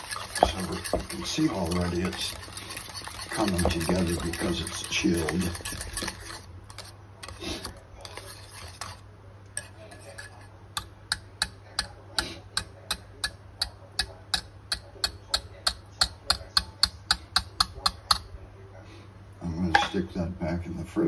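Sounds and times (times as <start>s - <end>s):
whisk swishing through cream: 0.0s - 10.5s
whisk wires ticking against pan: 10.8s - 18.3s.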